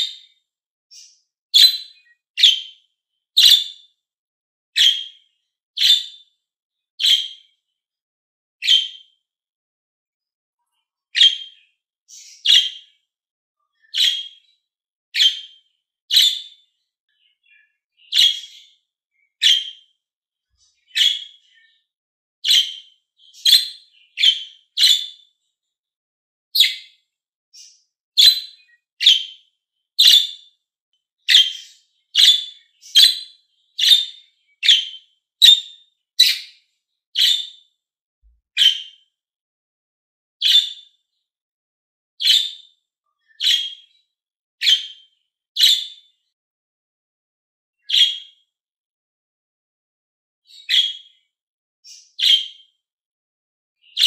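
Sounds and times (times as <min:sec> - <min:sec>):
budgerigar chirping: 0:00.9 - 0:02.7, 0:03.4 - 0:03.8, 0:04.8 - 0:05.2, 0:05.8 - 0:06.2, 0:07.0 - 0:07.4, 0:08.6 - 0:09.0, 0:11.2 - 0:12.8, 0:13.9 - 0:14.4, 0:15.2 - 0:16.6, 0:17.4 - 0:18.7, 0:19.4 - 0:19.8, 0:20.9 - 0:21.4, 0:22.4 - 0:25.2, 0:26.6 - 0:26.9, 0:27.6 - 0:29.4, 0:30.0 - 0:30.4, 0:31.3 - 0:36.6, 0:37.2 - 0:37.6, 0:38.6 - 0:38.9, 0:40.4 - 0:40.8, 0:42.2 - 0:42.6, 0:43.4 - 0:43.9, 0:44.6 - 0:45.0, 0:45.6 - 0:46.0, 0:50.6 - 0:51.0, 0:51.9 - 0:52.5.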